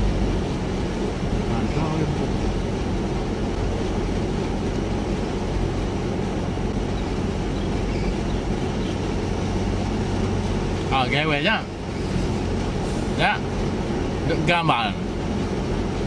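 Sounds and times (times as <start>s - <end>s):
car engine hum inside cabin: 0.0s - 16.0s
road noise hiss: 0.0s - 16.0s.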